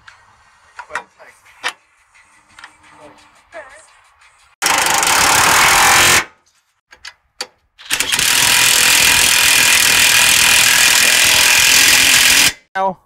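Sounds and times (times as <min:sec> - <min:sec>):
impact wrench hammering: 0:04.6 - 0:06.3, 0:06.9 - 0:12.7.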